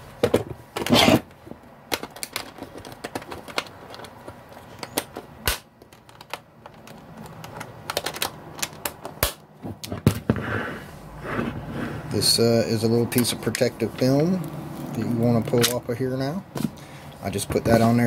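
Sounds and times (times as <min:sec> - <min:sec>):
metal latches clicking and rattling: 0:00.2 - 0:10.1.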